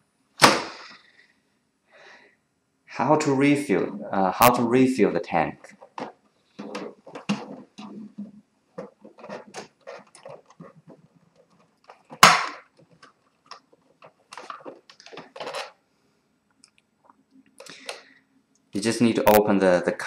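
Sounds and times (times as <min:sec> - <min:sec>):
plastic clicks and rustling: 0:05.6 - 0:15.8.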